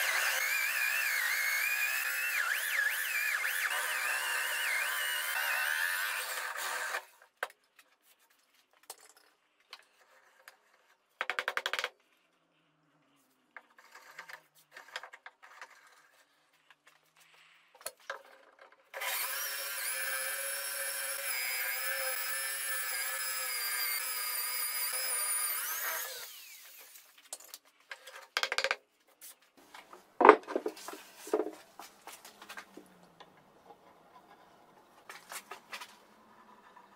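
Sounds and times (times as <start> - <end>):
electric drill boring wood: 0.0 - 7.1, 19.0 - 27.0.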